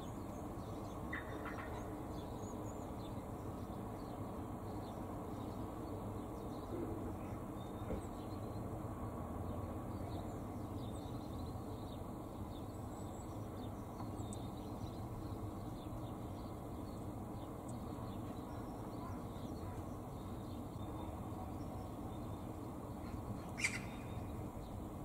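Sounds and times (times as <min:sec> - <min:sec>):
low outdoor background noise: 0:00.0 - 0:25.0
small birds chirping: 0:09.9 - 0:25.0.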